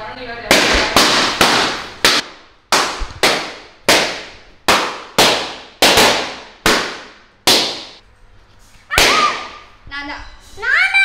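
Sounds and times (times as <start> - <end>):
balloons bursting: 0.5 - 8.0, 8.9 - 9.7.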